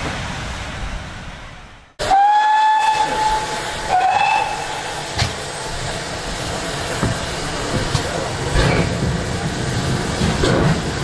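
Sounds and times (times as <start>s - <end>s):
steam locomotive whistle: 2.0s - 5.3s.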